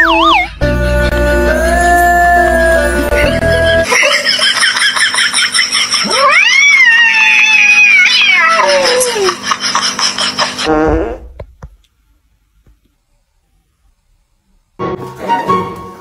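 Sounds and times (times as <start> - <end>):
cat caterwauling: 6.0 - 9.4.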